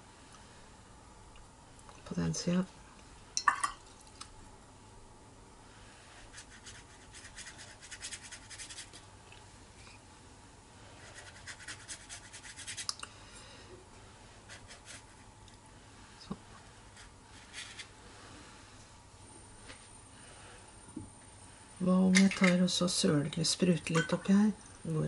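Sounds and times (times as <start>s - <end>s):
paintbrush scrubbing on paper: 6.3s - 9.0s, 11.0s - 12.9s, 14.5s - 15.3s.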